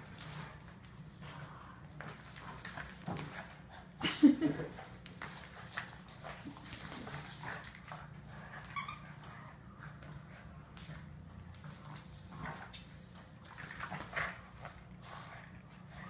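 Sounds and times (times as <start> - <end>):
dogs scuffling on rug: 0.0 - 4.0
dogs making play noises: 0.0 - 16.0.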